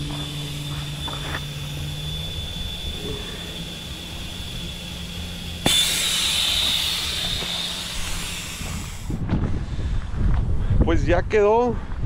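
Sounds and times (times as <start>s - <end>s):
air rushing out of tyre: 2.8s - 10.8s.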